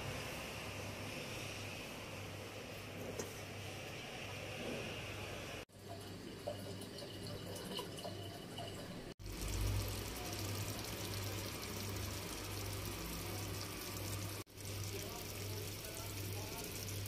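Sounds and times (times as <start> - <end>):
food sizzling in a frying pan: 9.2 - 17.0.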